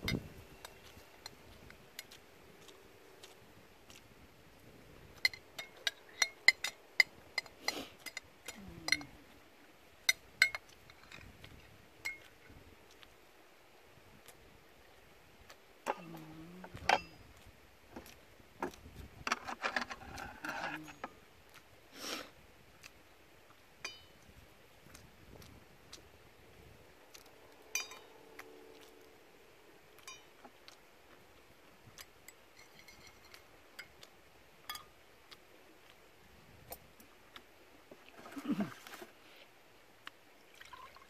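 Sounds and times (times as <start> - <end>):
metal spoon clinking on container: 27.8 - 28.2, 32.6 - 33.9.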